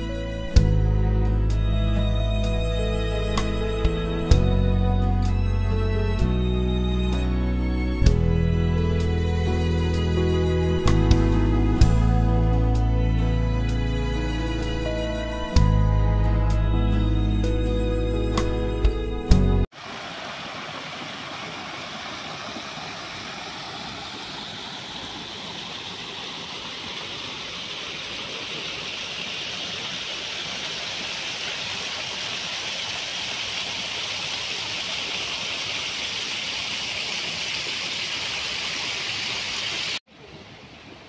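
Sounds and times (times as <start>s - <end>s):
water rushing along a stream: 19.7s - 41.0s.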